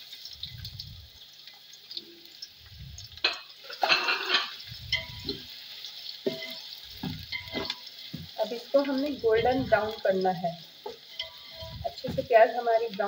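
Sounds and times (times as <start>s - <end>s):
onions sizzling in oil: 0.0s - 13.0s
spatula scraping pot: 3.7s - 5.5s, 6.2s - 8.2s, 10.8s - 12.4s.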